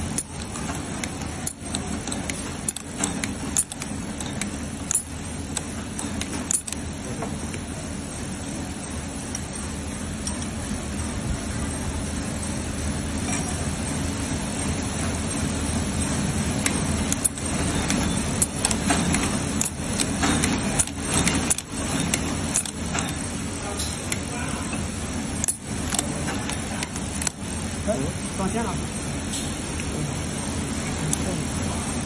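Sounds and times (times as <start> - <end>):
stitching machine rattling: 0.0 - 7.7, 16.1 - 24.3
sharp machine clicks: 0.0 - 11.1, 14.6 - 28.8.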